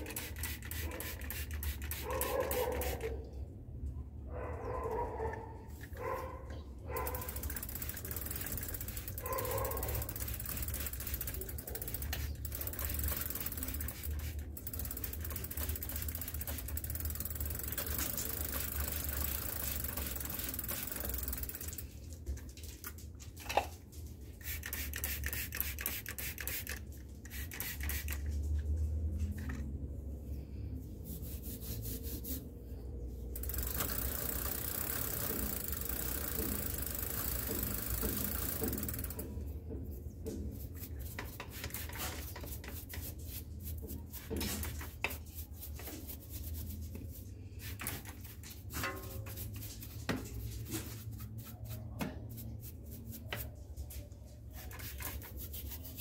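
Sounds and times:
bike freehub ratcheting clicks: 0.0 - 3.1, 7.0 - 21.8, 24.4 - 28.2, 33.3 - 39.4.

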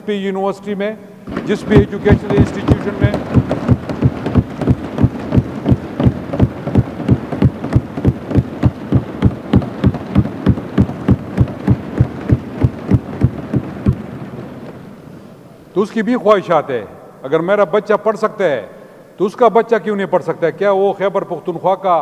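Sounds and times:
general clatter: 1.3 - 15.0
people thumping desks: 1.3 - 15.0.

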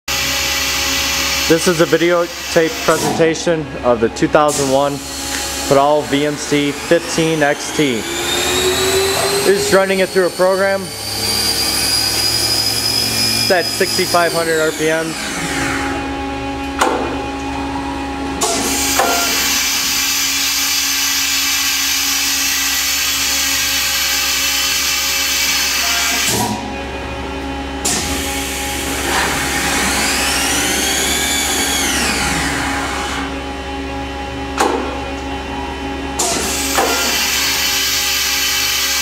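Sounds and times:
spindle whine: 0.1 - 38.9
machine hum: 0.1 - 39.0.

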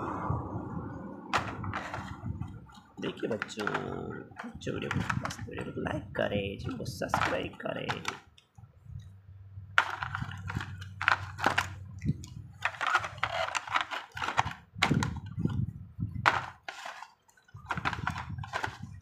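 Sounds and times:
figures clicking against plastic: 1.3 - 5.8, 6.6 - 9.1, 9.8 - 15.6, 16.2 - 19.0
plastic tray crinkling: 1.3 - 5.9, 6.6 - 8.5, 9.8 - 15.6, 16.2 - 19.0.

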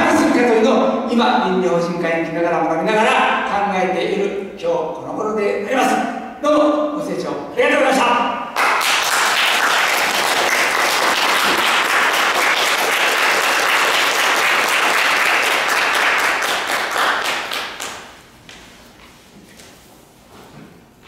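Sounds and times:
audience applauding: 8.6 - 18.1.

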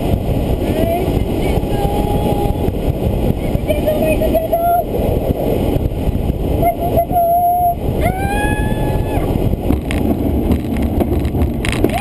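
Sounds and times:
glider wheel rumbling on grass: 8.8 - 12.0.

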